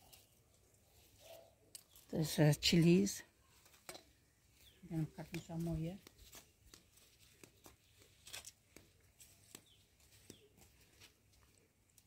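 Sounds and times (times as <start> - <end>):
faint clicks and rustles: 3.3 - 12.0.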